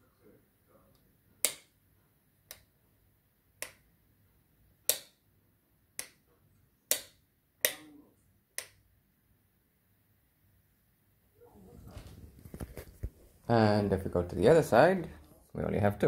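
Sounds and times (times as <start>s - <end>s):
light switches clicking: 1.4s - 1.7s, 3.6s - 3.9s, 4.9s - 5.2s, 6.0s - 6.2s, 6.9s - 7.9s, 8.6s - 8.8s.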